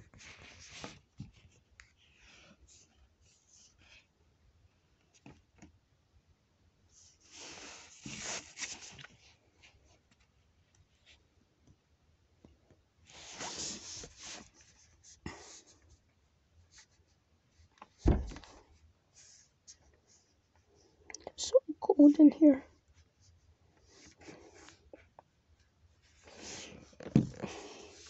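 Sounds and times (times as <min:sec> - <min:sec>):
fabric rustling on microphone: 0:13.1 - 0:15.7, 0:26.0 - 0:28.0
sharp thump: 0:18.0 - 0:18.5.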